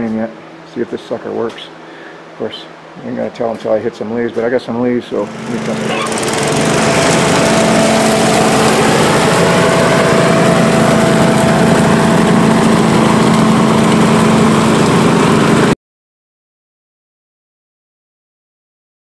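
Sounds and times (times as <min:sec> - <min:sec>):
lawn tractor engine running: 0:05.1 - 0:15.8.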